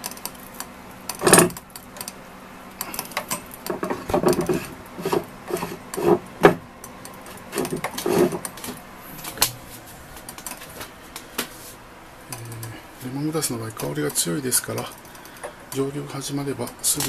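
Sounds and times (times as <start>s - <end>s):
faint steady hum: 0.0s - 17.0s
handling noise rubbing and knocks: 1.2s - 1.6s, 3.1s - 11.8s.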